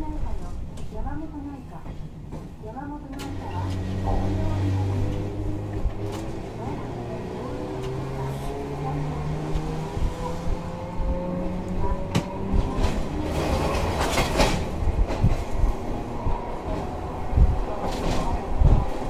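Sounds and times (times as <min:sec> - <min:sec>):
wheels clattering over rail joints: 0:12.1 - 0:15.6.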